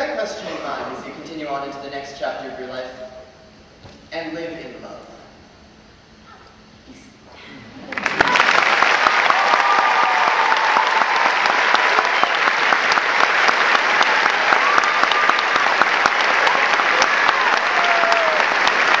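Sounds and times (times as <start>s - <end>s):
large audience applauding: 7.8s - 19.0s.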